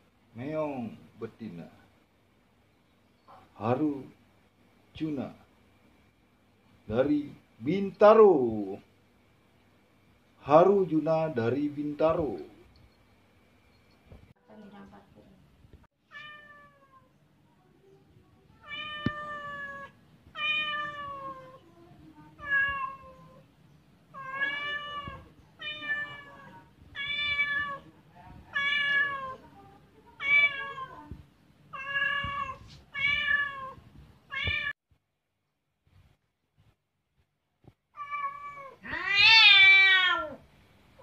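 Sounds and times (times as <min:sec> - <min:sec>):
cat meowing: 0:16.1 - 0:17.1, 0:18.6 - 0:21.7, 0:22.4 - 0:23.4, 0:24.1 - 0:29.5, 0:30.2 - 0:34.7, 0:38.0 - 0:40.4.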